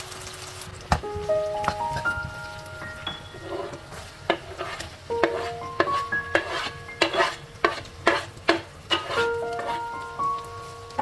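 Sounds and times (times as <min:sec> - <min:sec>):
onions sizzling in hot oil: 0:00.0 - 0:11.0
wooden spatula striking pan: 0:03.2 - 0:10.0.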